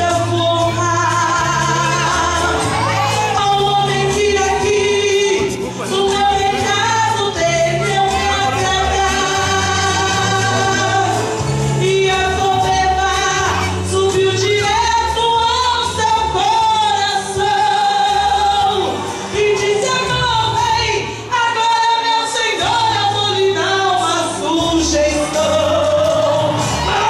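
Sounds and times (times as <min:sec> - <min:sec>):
instrumental accompaniment: 0:00.0 - 0:20.8
woman singing gospel: 0:00.0 - 0:27.0.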